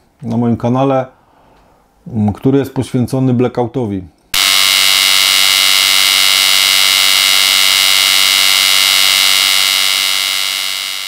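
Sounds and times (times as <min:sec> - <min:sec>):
high-pitched buzzing drone: 0:04.4 - 0:11.0.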